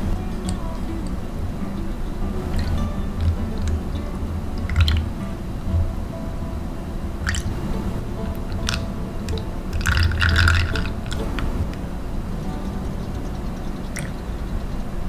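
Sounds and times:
steady low hum: 0:00.0 - 0:15.0
soap batter pouring: 0:09.7 - 0:11.3.

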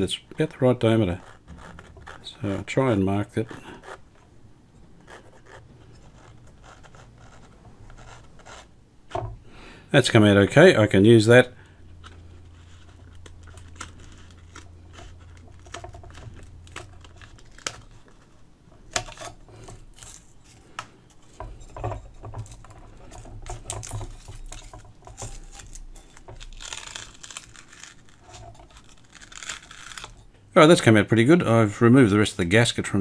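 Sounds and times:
knife cutting paper: 0:00.4 - 0:04.3, 0:05.0 - 0:08.8, 0:12.0 - 0:21.5, 0:22.4 - 0:30.2
paper crinkling and tearing: 0:12.1 - 0:21.3, 0:22.4 - 0:30.3.

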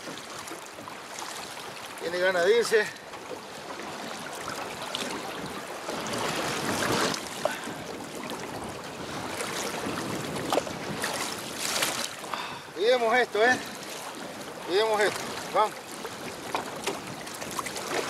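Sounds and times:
water splashing against boat: 0:00.0 - 0:18.0
sharp splash: 0:10.5 - 0:12.2.

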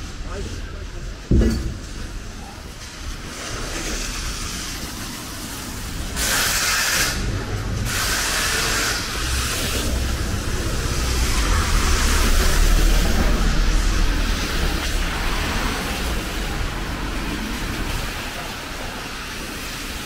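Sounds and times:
sharp hissing bursts: 0:03.6 - 0:20.0
low vehicle rumble: 0:09.0 - 0:19.9.

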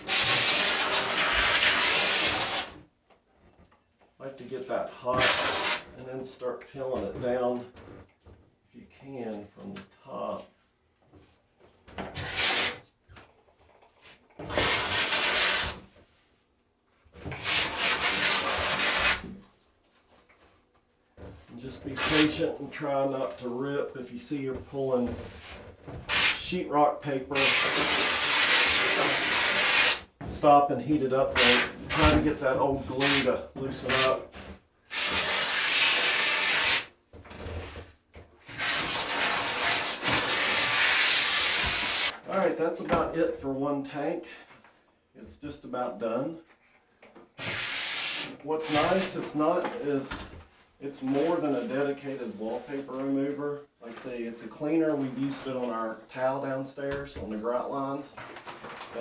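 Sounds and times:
wallpaper tearing: 0:00.0 - 0:02.8, 0:05.1 - 0:05.9, 0:12.2 - 0:12.8, 0:14.4 - 0:15.8, 0:17.2 - 0:19.3, 0:21.9 - 0:22.5, 0:26.1 - 0:26.5, 0:27.3 - 0:30.1, 0:31.3 - 0:34.2, 0:34.9 - 0:36.9, 0:38.4 - 0:42.2, 0:47.4 - 0:49.2.

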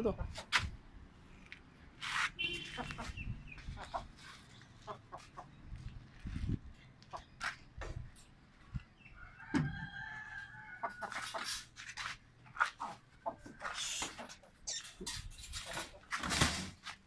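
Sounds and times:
hen clucking: 0:02.7 - 0:05.6, 0:12.6 - 0:16.0
wire-mesh cage door clicks and rustles: 0:14.7 - 0:16.8.

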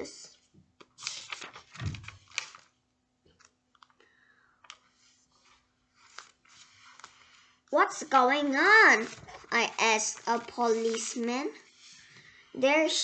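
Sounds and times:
book page turning: 0:00.8 - 0:07.5, 0:08.8 - 0:12.1
fingers rustling on paper: 0:08.8 - 0:11.3.

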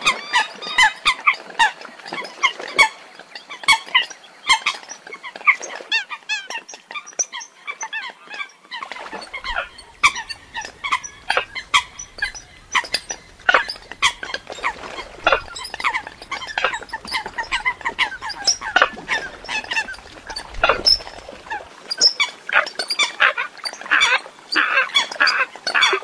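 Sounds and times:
coots calling: 0:08.9 - 0:26.0.

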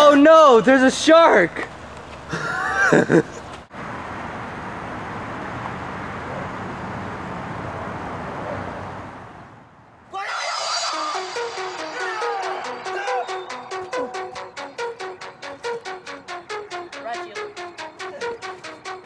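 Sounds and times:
outdoor hiss and rumble: 0:00.0 - 0:10.2
music: 0:10.3 - 0:19.0.

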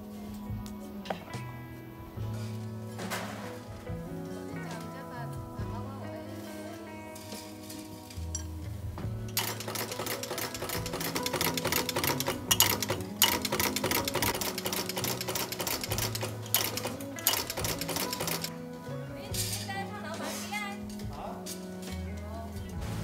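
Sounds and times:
background music: 0:00.0 - 0:23.0
punch machine clattering: 0:09.3 - 0:18.6.

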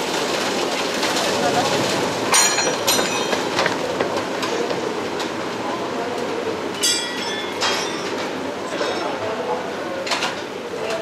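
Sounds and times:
metal clanks and knocks: 0:02.3 - 0:04.7, 0:06.8 - 0:09.0.

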